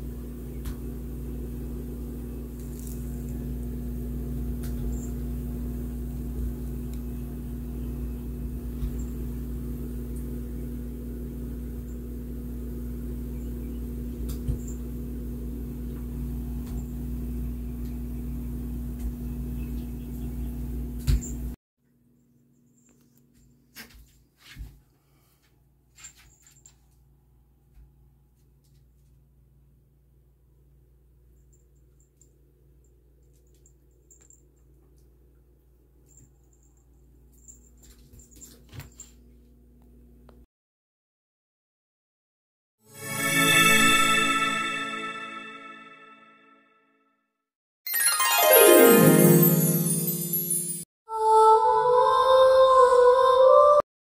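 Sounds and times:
electrical appliance hum: 0.0s - 26.0s.

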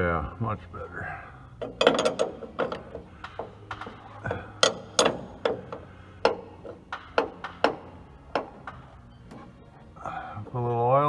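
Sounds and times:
wrench clicking on metal: 1.6s - 8.8s.

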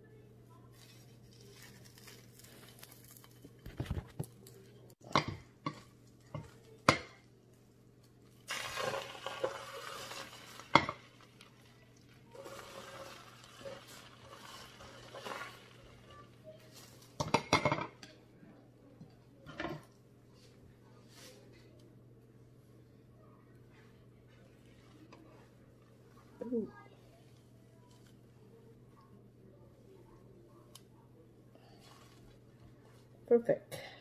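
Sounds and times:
egg sizzling on griddle: 8.3s - 17.7s.

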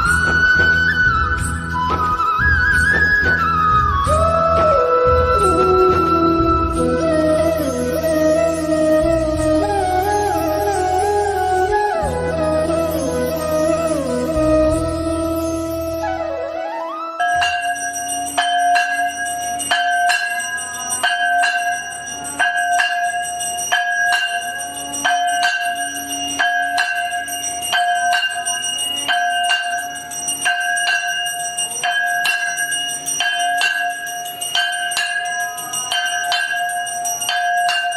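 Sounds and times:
temple bell ringing: 5.3s - 37.9s.

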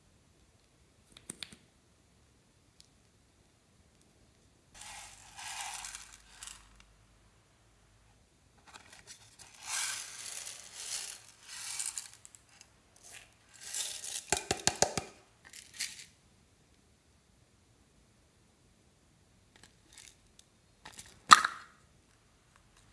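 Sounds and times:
plastic containers rustling and scraping: 4.8s - 6.8s, 8.6s - 16.1s.

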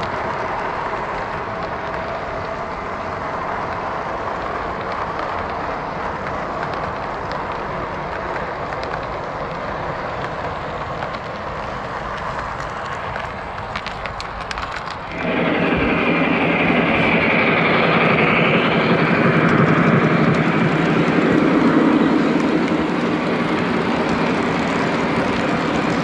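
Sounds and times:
model train wheels clicking: 0.0s - 26.0s
high rushing sound: 15.1s - 25.7s.

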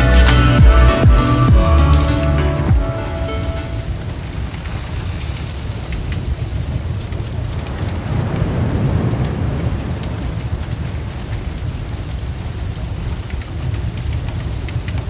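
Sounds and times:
fire crackling and popping: 3.5s - 15.0s
roar of flames: 3.9s - 15.0s.

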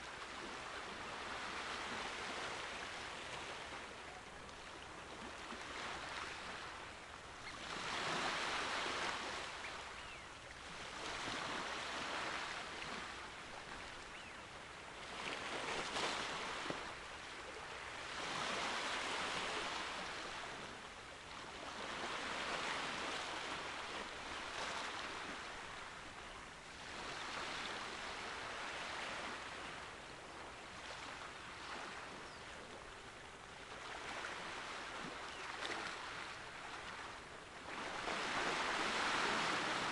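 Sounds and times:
sea waves breaking: 33.6s - 39.9s.

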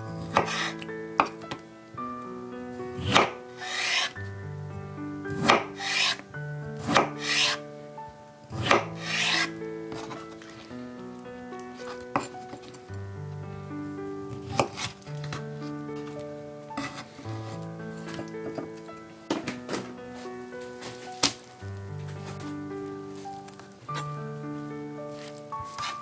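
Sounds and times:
background music: 0.0s - 26.0s
knife cutting on cutting board: 3.1s - 4.1s, 6.9s - 7.6s, 8.7s - 10.2s.

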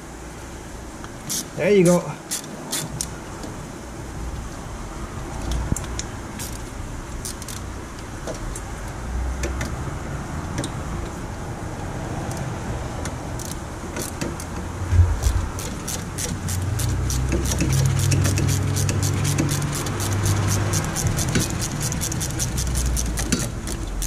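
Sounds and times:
steady low hum: 14.7s - 16.8s
heavy thump: 14.8s - 16.1s.

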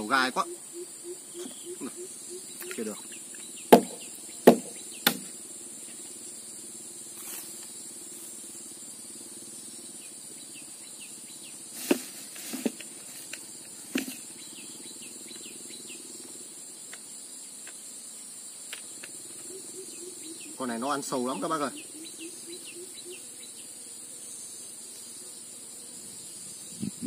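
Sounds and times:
high insect chirring: 0.0s - 27.0s
sharp knocks: 3.7s - 5.3s.

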